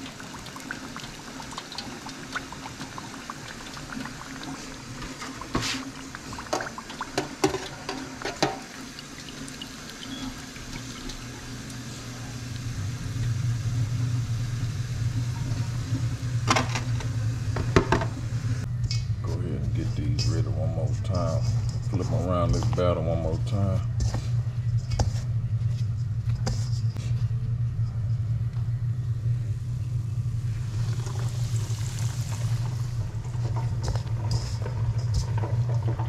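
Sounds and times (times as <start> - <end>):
oil bubbling in deep fryer: 0.0 - 18.7, 29.1 - 36.0
low steady hum: 0.0 - 36.0.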